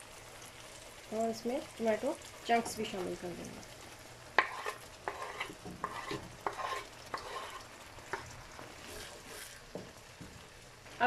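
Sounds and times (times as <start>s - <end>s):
sauce sizzling: 0.0s - 11.0s
spatula scraping a frying pan: 4.4s - 9.7s.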